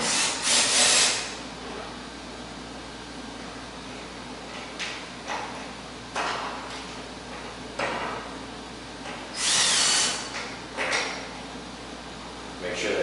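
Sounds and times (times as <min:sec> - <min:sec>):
power drill whine: 0:09.3 - 0:10.4.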